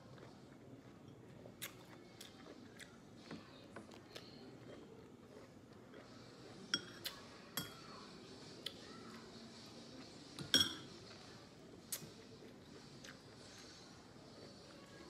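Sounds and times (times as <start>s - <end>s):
tableware clinking: 6.7s - 7.0s, 10.4s - 11.0s.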